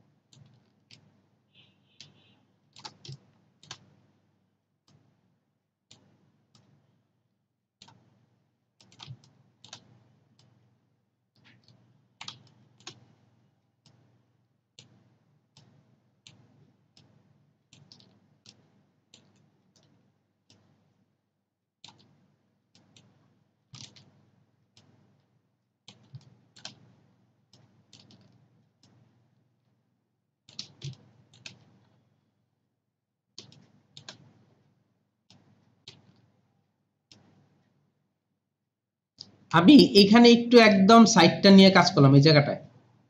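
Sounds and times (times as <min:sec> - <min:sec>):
computer mouse clicking: 0:00.3 - 0:04.1, 0:05.9 - 0:06.8, 0:07.8 - 0:08.2, 0:08.8 - 0:10.6, 0:11.3 - 0:13.2, 0:13.8 - 0:14.2, 0:14.8 - 0:20.8, 0:21.8 - 0:29.2, 0:30.5 - 0:32.0, 0:33.4 - 0:34.7, 0:35.3 - 0:36.3, 0:37.1 - 0:37.7.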